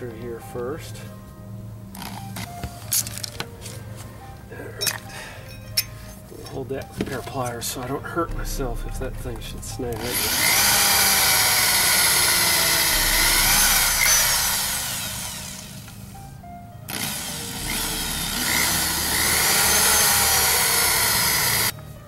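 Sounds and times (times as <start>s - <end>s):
cordless drill boring metal: 10.0s - 16.0s, 16.9s - 21.7s.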